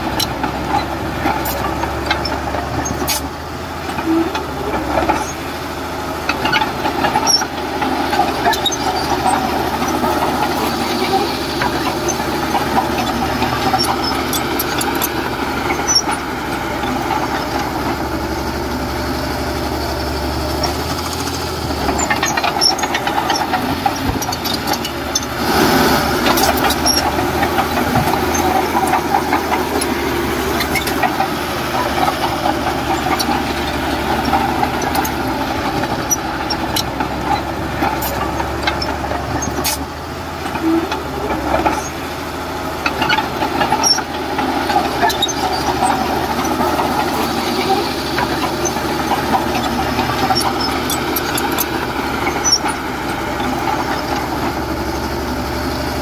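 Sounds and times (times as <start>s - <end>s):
heavy diesel engine running: 0.0s - 56.0s
metal clanks and rattles: 26.1s - 42.0s.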